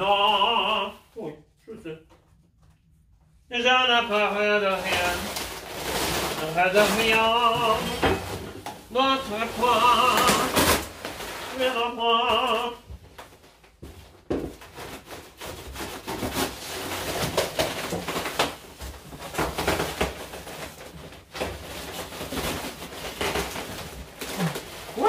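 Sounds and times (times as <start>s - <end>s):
man singing: 0.0s - 2.0s, 3.5s - 5.4s, 6.3s - 10.8s, 11.5s - 12.9s
wooden furniture knocking and scraping: 6.3s - 10.6s.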